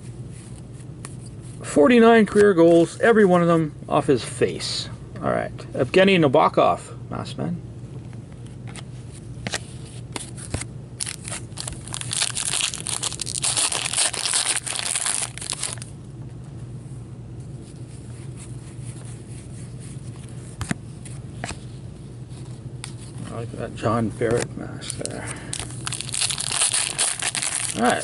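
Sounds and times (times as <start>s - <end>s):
foil wrapper tearing and crinkling: 11.0s - 15.9s, 25.0s - 28.0s.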